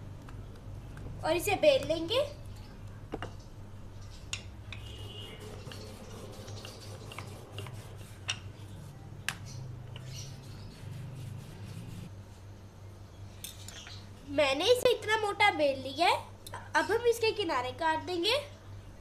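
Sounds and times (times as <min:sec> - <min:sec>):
steady low hum: 0:00.0 - 0:17.3
rolling pin working dough on stone: 0:05.3 - 0:08.9.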